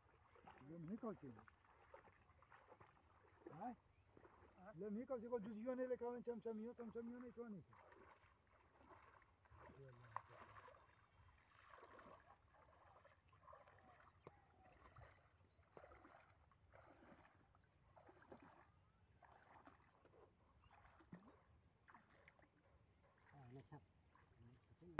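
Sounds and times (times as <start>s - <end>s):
water splashes: 0.0s - 24.9s.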